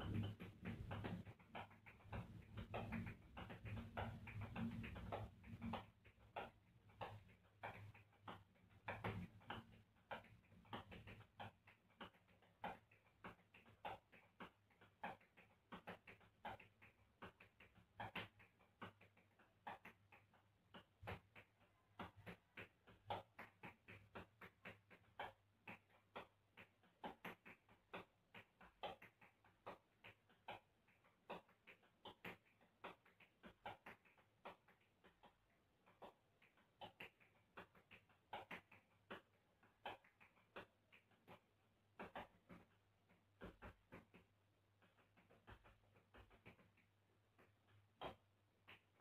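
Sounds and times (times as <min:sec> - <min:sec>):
tap shoes clicking on tile: 0:00.0 - 0:49.0.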